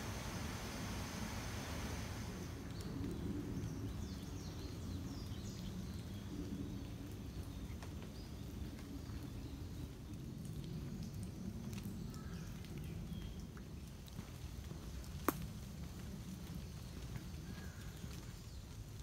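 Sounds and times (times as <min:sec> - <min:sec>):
steady low rumble: 0:00.0 - 0:05.1.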